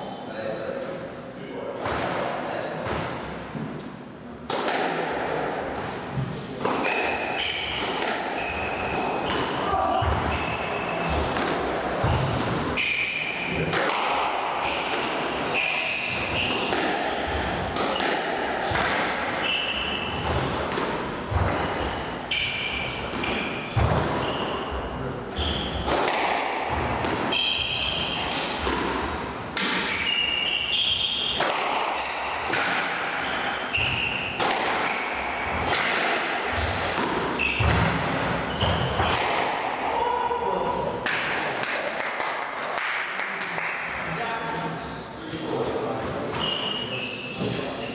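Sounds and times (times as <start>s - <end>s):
squash ball hits: 6.6s - 24.6s, 25.5s - 39.9s
shoes squeaking on wooden floor: 46.2s - 47.9s.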